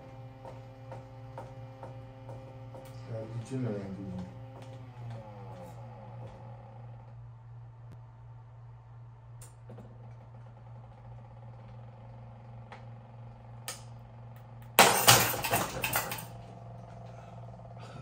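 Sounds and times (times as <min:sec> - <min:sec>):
stepper motors whining: 0:00.0 - 0:07.8
robot arm crashing and rattling: 0:14.7 - 0:16.4.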